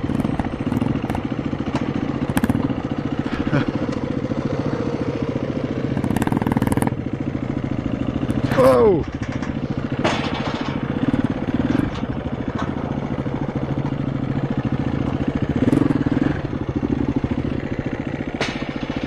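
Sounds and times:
motorcycle engine at low revs: 0:00.0 - 0:19.0
sharp clacks: 0:18.3 - 0:19.0.

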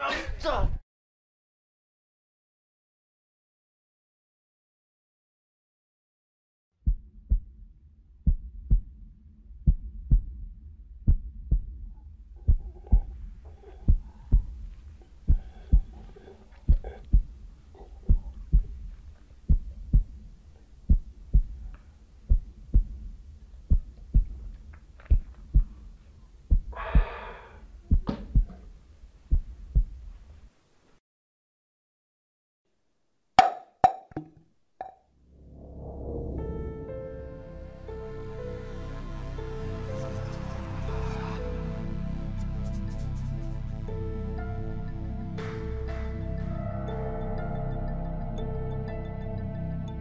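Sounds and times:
heartbeat thumps: 0:06.8 - 0:30.2.

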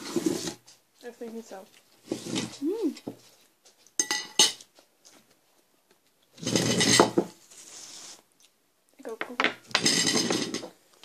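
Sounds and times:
cutlery clattering against dishes: 0:04.0 - 0:04.6, 0:09.7 - 0:10.7
forks clinking on plates: 0:04.0 - 0:04.6.

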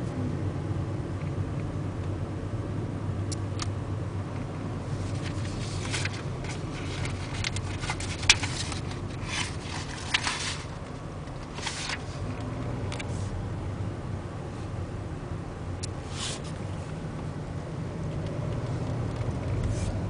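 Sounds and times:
car engine and tyre hum: 0:00.0 - 0:20.0
scraping and rubbing noises: 0:04.9 - 0:10.8, 0:11.4 - 0:12.4, 0:16.0 - 0:16.6, 0:19.6 - 0:20.0.

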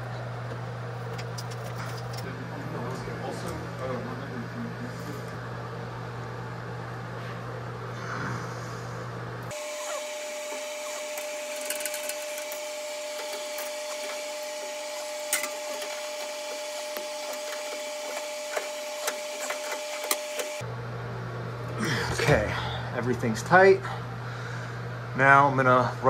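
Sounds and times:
steady mid-pitched hum: 0:00.0 - 0:26.0.

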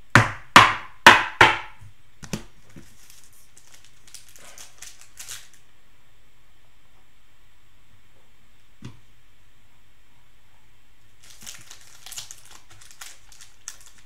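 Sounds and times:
sharp knocks: 0:00.2 - 0:01.8
plastic wrapper crinkling: 0:02.6 - 0:05.6, 0:11.2 - 0:14.0
wrapper tearing open: 0:03.0 - 0:05.6, 0:11.2 - 0:14.0.

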